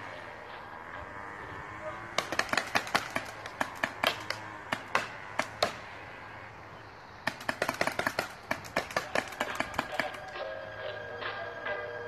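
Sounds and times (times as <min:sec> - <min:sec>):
paintball markers firing: 0:02.1 - 0:05.9, 0:07.2 - 0:10.4.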